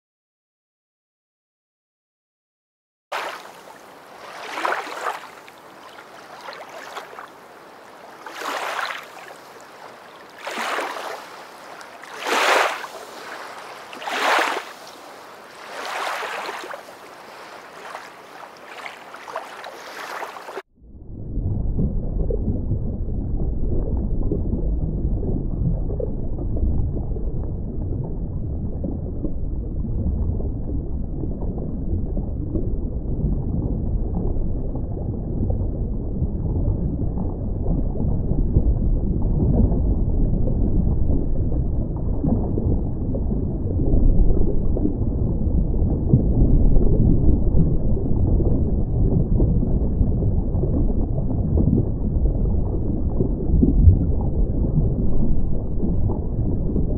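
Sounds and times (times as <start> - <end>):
water rushing in swells: 3.1 - 20.6.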